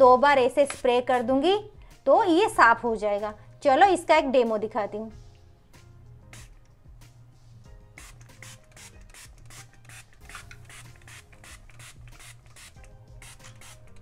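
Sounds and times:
spray bottle hissing spurts: 0:06.3 - 0:06.6, 0:08.0 - 0:14.0.

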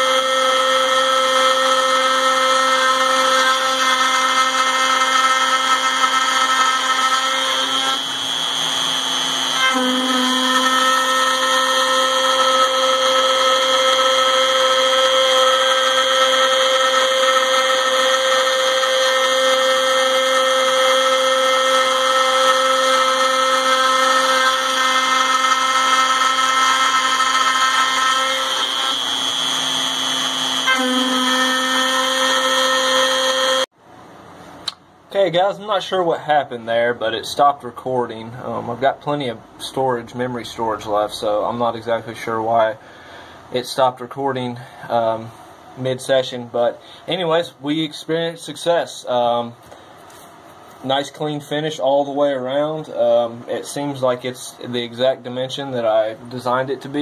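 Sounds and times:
router spindle whine cutting metal: 0:00.0 - 0:33.7.

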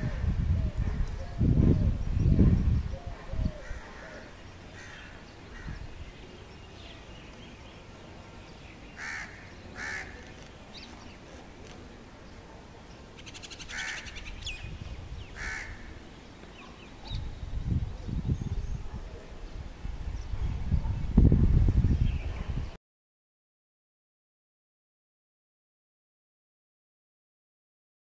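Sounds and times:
outdoor background noise: 0:00.0 - 0:22.8
small birds chirping: 0:00.7 - 0:21.2
crow cawing: 0:03.6 - 0:05.8, 0:09.0 - 0:10.2, 0:13.7 - 0:14.2, 0:15.4 - 0:15.9.

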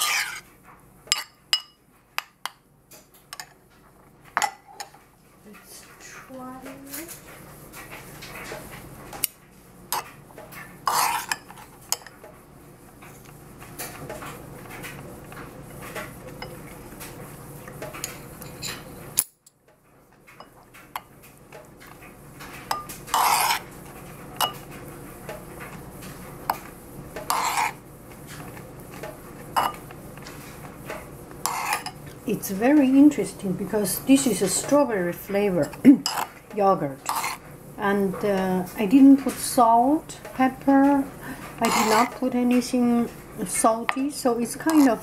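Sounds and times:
spoon scraping ceramic bowl: 0:00.0 - 0:00.5, 0:10.9 - 0:12.1, 0:22.7 - 0:23.7, 0:27.2 - 0:28.5, 0:29.6 - 0:29.8, 0:31.4 - 0:32.1, 0:35.6 - 0:36.3, 0:37.0 - 0:37.4, 0:41.6 - 0:42.2, 0:43.8 - 0:45.0
metal spoon clinking on bowl: 0:01.1 - 0:01.8.

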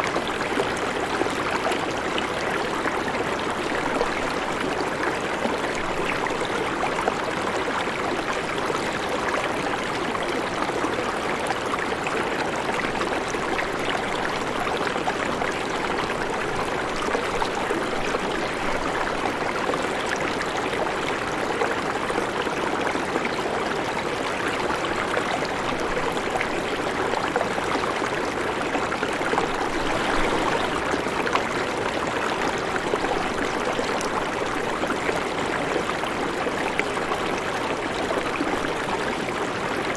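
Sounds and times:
river water rushing: 0:29.2 - 0:34.8.

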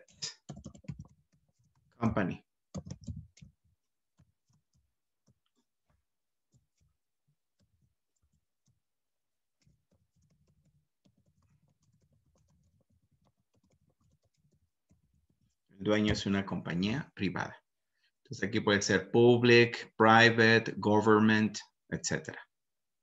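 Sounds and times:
keyboard typing: 0:00.3 - 0:01.9, 0:02.7 - 0:03.6, 0:09.6 - 0:15.2.

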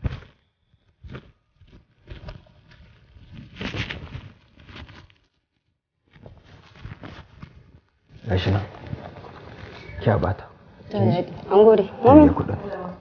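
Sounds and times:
cloth and paper rustling: 0:00.0 - 0:13.0.

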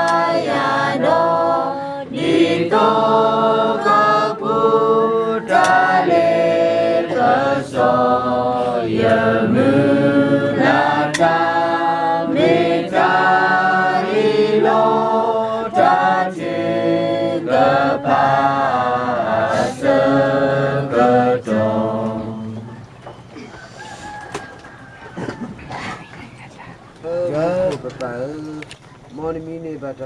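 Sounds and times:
group singing unaccompanied: 0:00.0 - 0:23.3.

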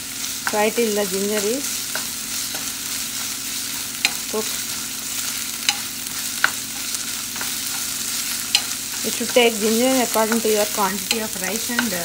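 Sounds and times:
onions sizzling in hot oil: 0:00.0 - 0:12.0
spatula clicking against pan: 0:04.0 - 0:04.3, 0:05.6 - 0:12.0.

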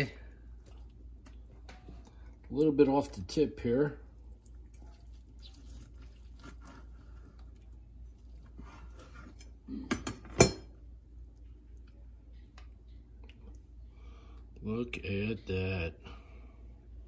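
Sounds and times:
knife scraping on cutting board: 0:08.4 - 0:09.6.

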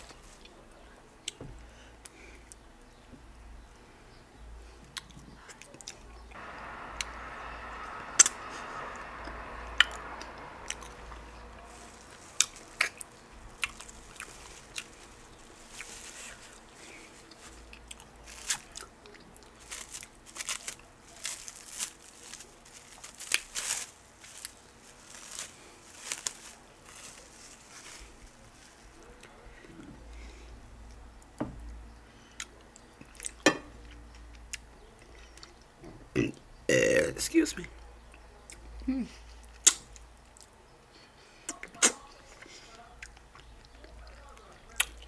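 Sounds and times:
wet chewing: 0:09.8 - 0:21.2, 0:41.5 - 0:45.0
lip smacks: 0:39.4 - 0:40.6, 0:41.5 - 0:45.0.

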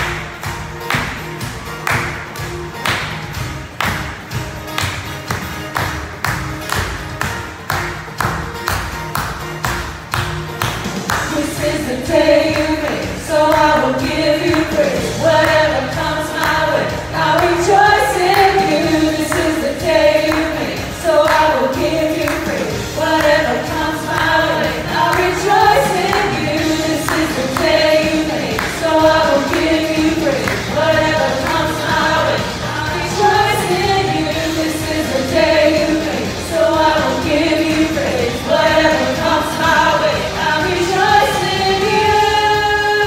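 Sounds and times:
worship band playing: 0:00.0 - 0:43.0
voices singing: 0:11.1 - 0:43.0.

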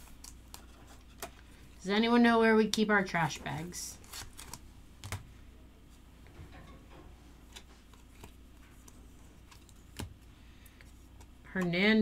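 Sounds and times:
cards being flipped: 0:04.0 - 0:05.2, 0:07.5 - 0:10.2.

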